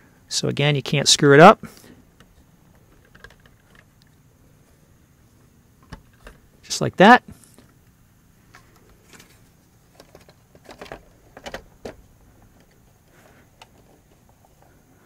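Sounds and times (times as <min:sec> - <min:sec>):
plastic case clicks and knocks: 0:10.0 - 0:12.8.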